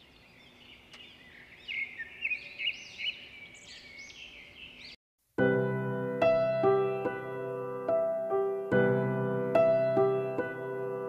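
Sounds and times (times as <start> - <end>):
many birds chirping: 0.0 - 5.0.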